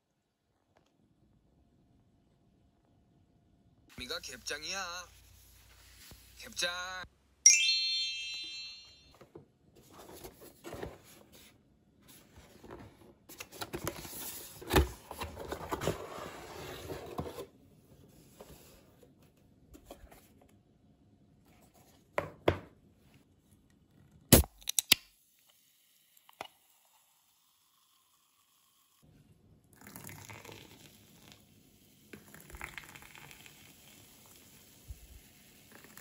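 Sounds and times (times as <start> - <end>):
drink fizzing: 29.7 - 31.5, 32.1 - 36.0.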